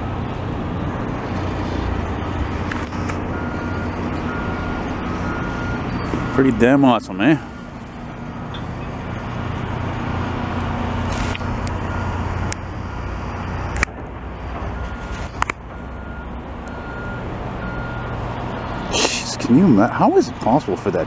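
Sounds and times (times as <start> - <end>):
diesel engines droning: 0.0 - 21.0
reversing alarm beeping: 3.3 - 8.9, 11.4 - 12.3, 14.7 - 18.2.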